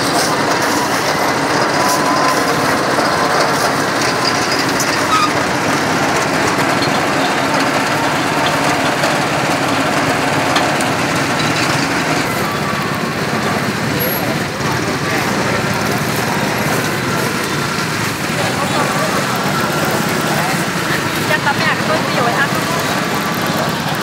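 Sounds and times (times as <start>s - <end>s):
outdoor market noise: 0.0s - 24.0s
small engine running: 0.0s - 24.0s.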